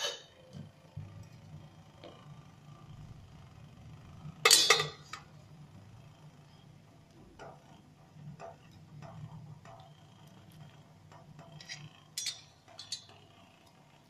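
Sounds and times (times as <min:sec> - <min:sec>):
low steady hum: 0:00.0 - 0:14.0
taps and clinks on steel plate: 0:04.5 - 0:05.2, 0:11.1 - 0:13.2.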